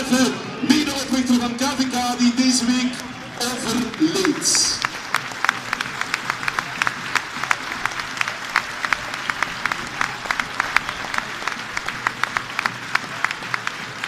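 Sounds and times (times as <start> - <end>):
stadium crowd applauding: 0.0 - 14.0
close hand claps: 3.0 - 14.0.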